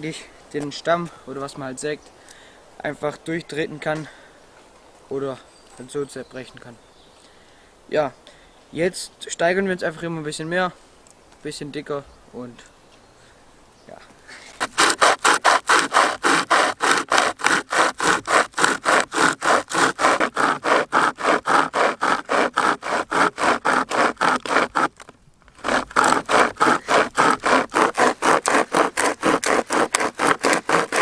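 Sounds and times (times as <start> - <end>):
hand chainsaw sawing a log: 14.5 - 31.0.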